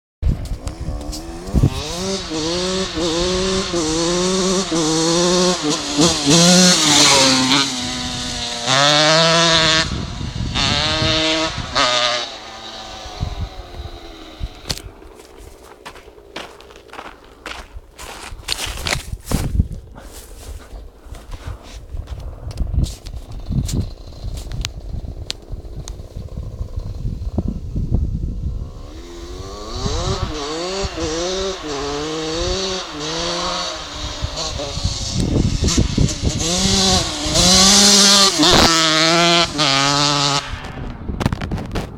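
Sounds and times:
motorcycle accelerating through gears: 0.2 - 17.6, 18.8 - 41.9.

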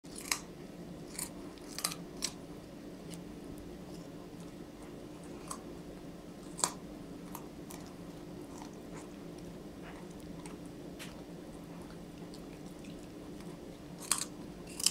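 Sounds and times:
teeth crunching raw carrot: 0.1 - 2.4, 6.4 - 14.9
low steady hum: 0.1 - 14.9.

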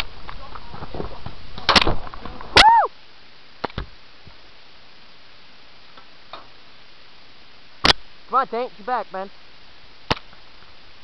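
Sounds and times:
sharp crack: 1.6 - 2.8, 10.1 - 10.4
person shouting: 2.6 - 2.9.

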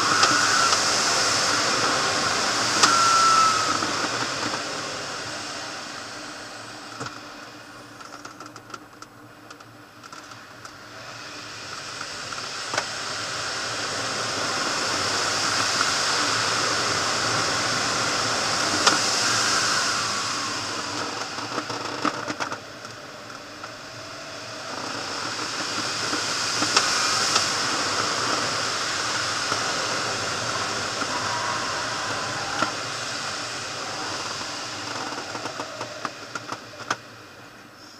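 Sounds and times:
air rushing over canopy: 0.0 - 7.8, 10.8 - 37.4
small clicks and rattles in cockpit: 8.0 - 10.8.

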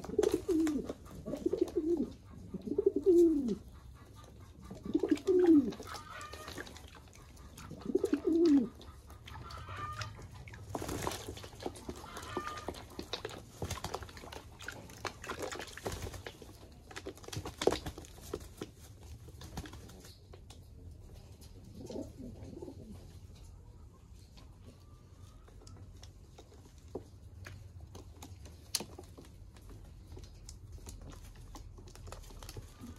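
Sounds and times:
pigeons cooing: 0.0 - 13.1, 21.4 - 23.2
birds splashing and fluttering: 0.0 - 22.1, 25.1 - 32.9.

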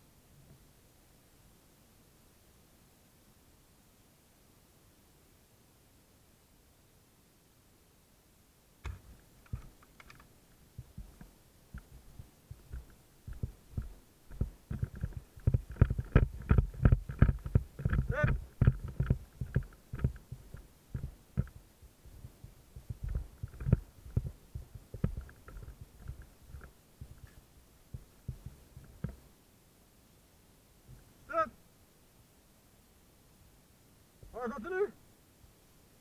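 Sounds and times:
gear knocking on microphone: 8.8 - 29.2
footsteps on forest floor: 10.8 - 29.0.

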